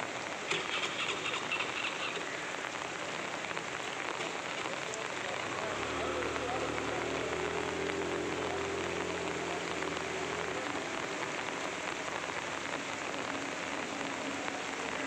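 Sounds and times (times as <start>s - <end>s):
heavy rain on water: 0.0s - 15.0s
low engine hum: 5.1s - 15.0s.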